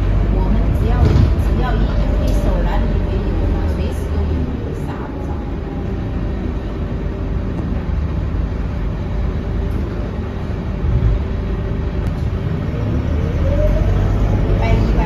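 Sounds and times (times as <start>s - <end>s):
bus diesel engine droning: 0.0s - 15.0s.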